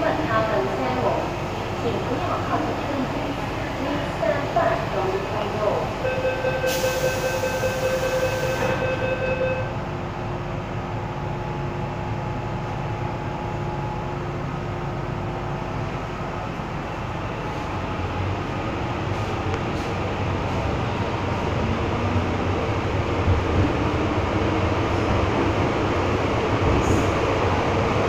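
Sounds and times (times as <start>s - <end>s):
metro car hum: 0.0s - 28.0s.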